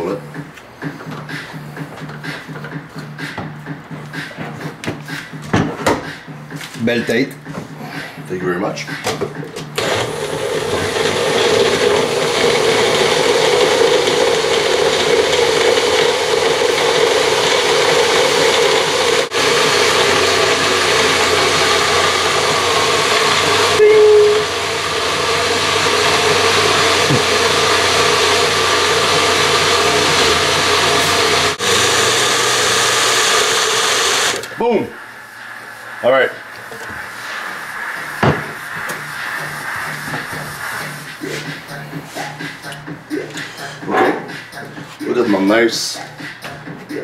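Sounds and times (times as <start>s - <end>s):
blender running loudly: 9.8s - 34.6s.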